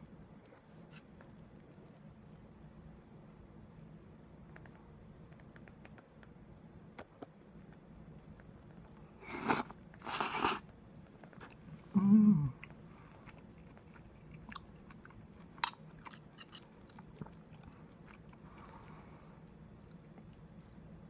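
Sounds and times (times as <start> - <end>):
person humming mmm: 11.9 - 12.7.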